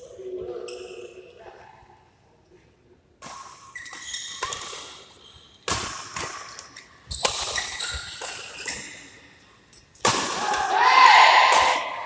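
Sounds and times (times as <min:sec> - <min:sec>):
racket hitting shuttlecock: 0:05.6 - 0:09.0, 0:11.4 - 0:12.0.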